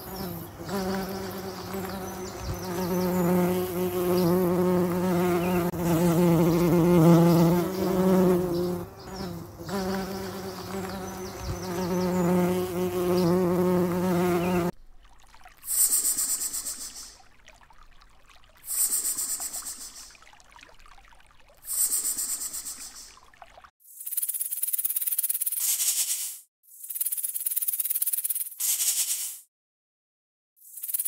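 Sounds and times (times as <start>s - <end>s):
insect buzzing in flight: 0.0s - 14.7s.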